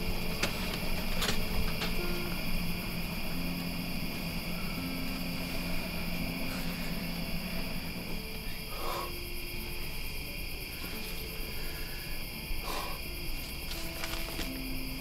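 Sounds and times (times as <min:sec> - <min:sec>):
low held tones: 0:00.0 - 0:15.0
night insects chirring: 0:00.0 - 0:15.0
soft rustles: 0:13.4 - 0:14.7.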